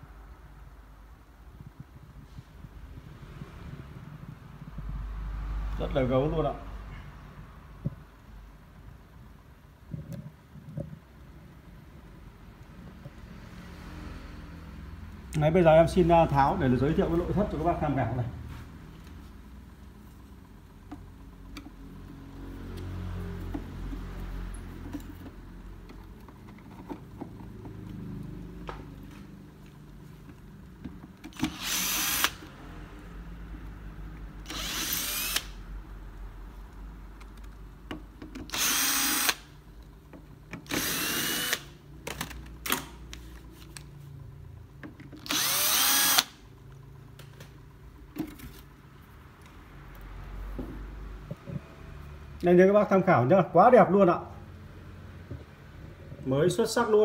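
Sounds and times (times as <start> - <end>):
handling clicks and knocks: 23.4 - 31.4
cordless drill whirring: 31.3 - 32.5, 34.4 - 35.6, 38.5 - 39.5, 40.6 - 41.8, 45.2 - 46.4.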